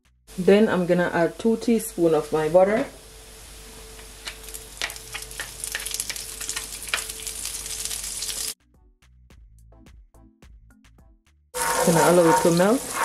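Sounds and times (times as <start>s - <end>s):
garlic sizzling in oil: 1.8s - 8.6s, 11.6s - 13.0s
oil popping: 4.0s - 8.6s.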